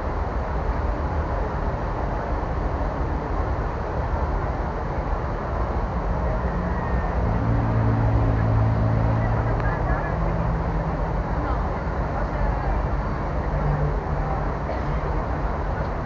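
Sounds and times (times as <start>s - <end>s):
large crowd din: 5.6s - 16.0s.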